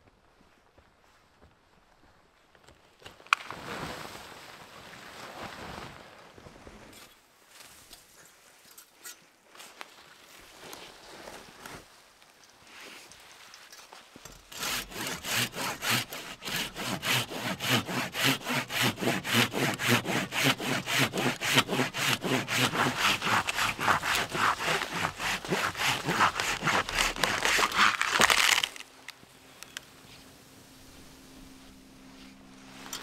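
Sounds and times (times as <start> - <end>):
hand saw cutting wood: 14.4 - 28.8.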